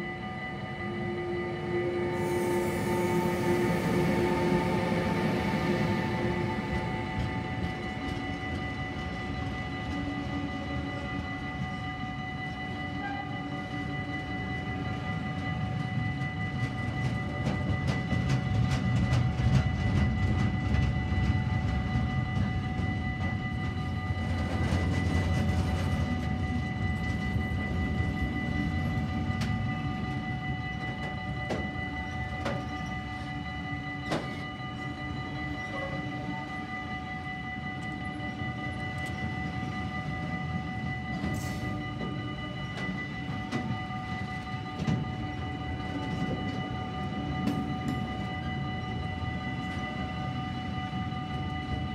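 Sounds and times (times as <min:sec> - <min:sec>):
freight train wheels rumbling on rails: 0:00.0 - 0:51.9
steady high-pitched tones: 0:00.0 - 0:51.9.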